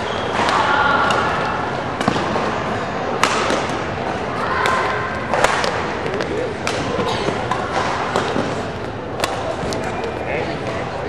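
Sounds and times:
murmur of voices: 0.0s - 11.0s
racket striking shuttlecock: 3.1s - 9.9s.

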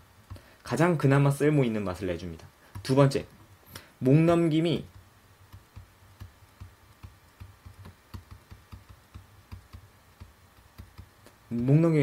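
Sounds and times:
pen tapping on tablet: 4.9s - 11.7s.

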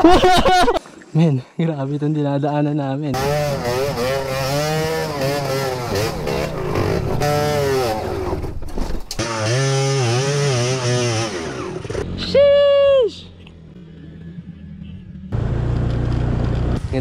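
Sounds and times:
motorcycle engine revving: 3.2s - 12.5s
knocks from bumpy ground: 6.7s - 9.2s.

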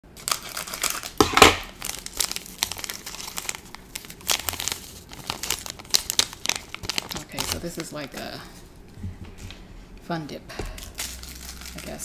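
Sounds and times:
plastic packet crinkling: 0.2s - 8.5s, 10.8s - 12.0s.

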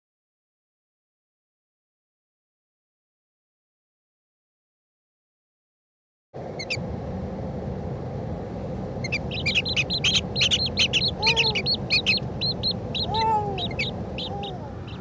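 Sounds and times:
steady low rumble: 6.4s - 15.0s
chicks peeping: 6.6s - 6.8s, 9.0s - 15.0s.

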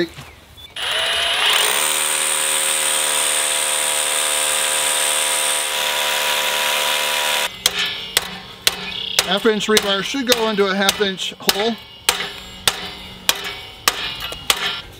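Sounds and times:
hammer drill drilling into concrete: 0.8s - 7.5s.

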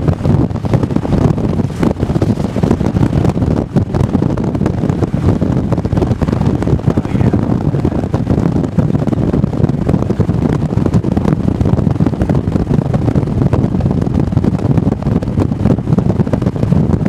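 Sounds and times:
motorcycle engine: 0.0s - 13.4s
road noise: 0.0s - 13.5s
wind buffeting microphone: 0.0s - 17.0s.

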